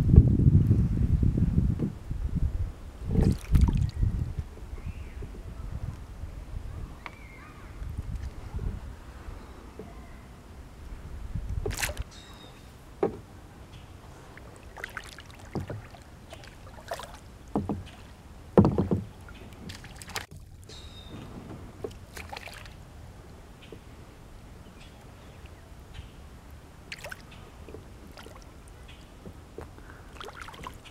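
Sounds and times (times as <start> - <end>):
knocks and bumps on kayak hull: 13.0 - 13.3, 15.5 - 16.0, 17.5 - 20.0.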